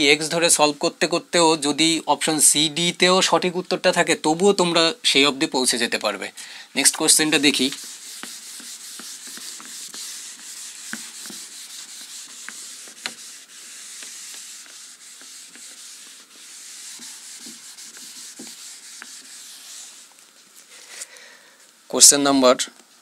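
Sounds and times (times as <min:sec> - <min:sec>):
eraser rubbing on whiteboard: 0:06.9 - 0:20.4.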